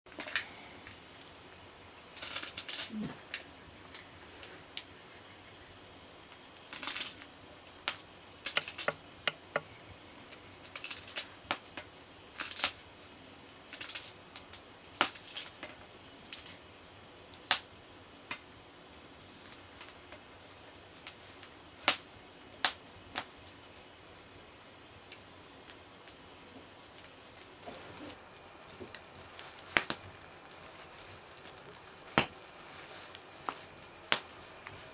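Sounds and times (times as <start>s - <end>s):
leaves rustling: 0.4s - 16.7s, 25.9s - 34.9s.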